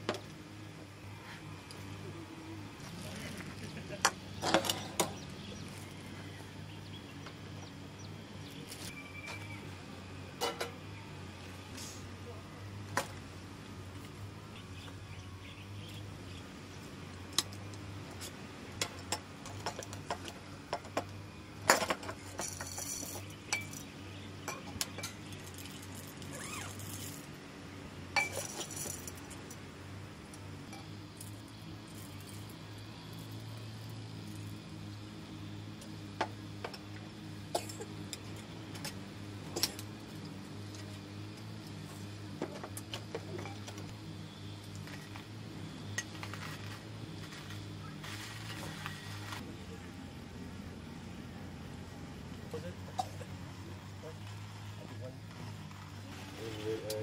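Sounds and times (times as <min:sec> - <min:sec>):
steady low hum: 0:00.0 - 0:57.0
dishes and utensils clinking: 0:28.2 - 0:29.0.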